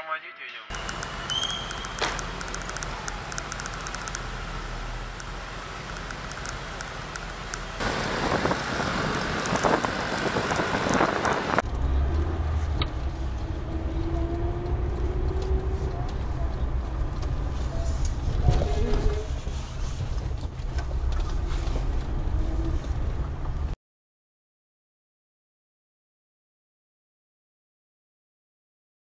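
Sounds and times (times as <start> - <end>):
low engine rumble: 0.7 - 23.8
road traffic noise: 0.7 - 23.8.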